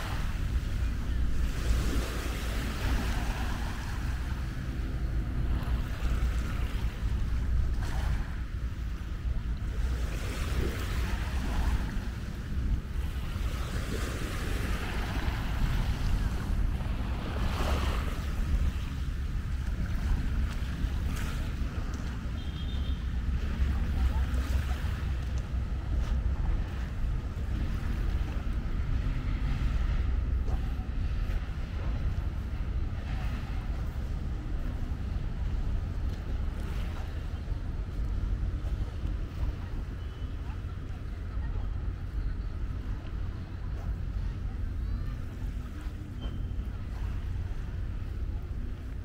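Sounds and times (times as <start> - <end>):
small waves breaking: 0.0 - 49.0
wind buffeting microphone: 23.0 - 49.0.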